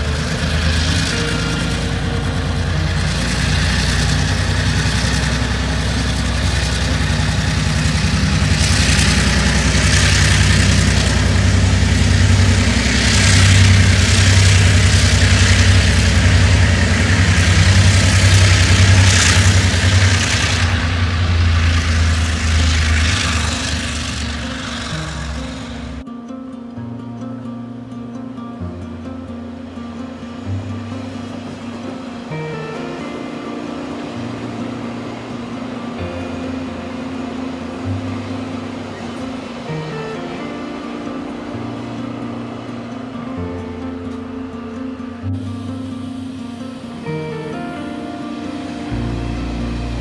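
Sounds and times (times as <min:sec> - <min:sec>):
hiss: 0:00.0 - 0:26.0
locomotive engine drone: 0:00.0 - 0:50.0.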